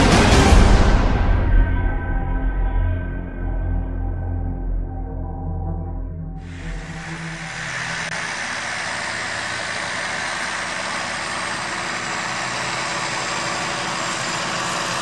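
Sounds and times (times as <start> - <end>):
tractor diesel engine running: 6.4 - 15.0.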